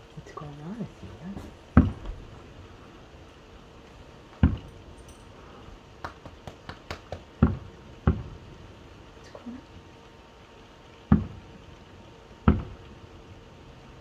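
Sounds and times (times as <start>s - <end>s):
firework crackling pops: 1.3s - 2.5s, 3.9s - 4.8s, 6.0s - 8.4s, 11.1s - 11.6s, 12.4s - 12.9s
distant firework booms: 1.4s - 2.5s, 4.4s - 4.8s, 7.2s - 8.4s, 11.1s - 11.6s, 12.4s - 12.9s.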